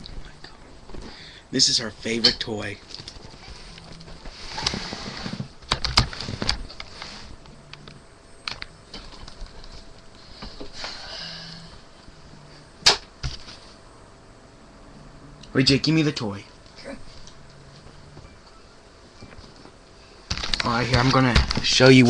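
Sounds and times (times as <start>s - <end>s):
sharp loud click: 12.8s - 13.1s.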